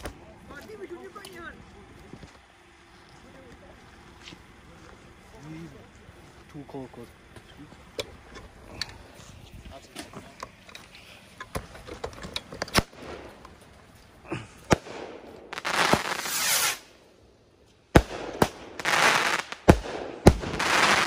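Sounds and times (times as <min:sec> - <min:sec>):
fireworks bangs and pops: 0:11.5 - 0:13.7, 0:14.6 - 0:17.0, 0:17.9 - 0:21.0
firework hissing rushes: 0:14.7 - 0:17.1, 0:18.0 - 0:21.0.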